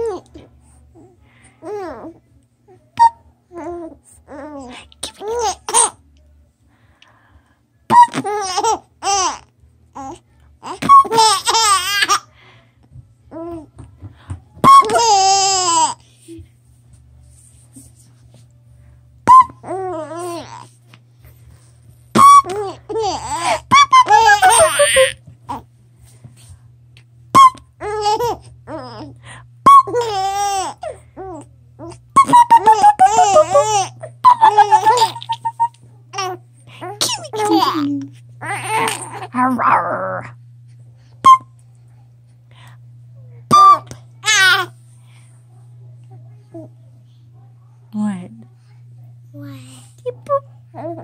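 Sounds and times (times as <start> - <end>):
baby giggling: 7.9 - 9.4, 10.7 - 12.2, 14.8 - 16.0, 22.2 - 25.2, 27.8 - 29.0, 32.2 - 39.3
baby warbling laugh: 22.5 - 25.2.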